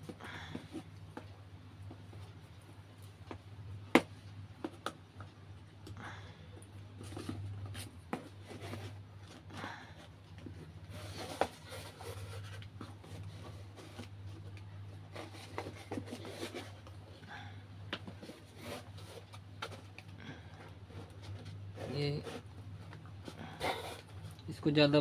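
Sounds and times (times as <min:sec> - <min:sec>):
steady low hum: 0:00.0 - 0:25.0
cardboard scraping and rustling: 0:06.9 - 0:17.0, 0:18.0 - 0:24.3.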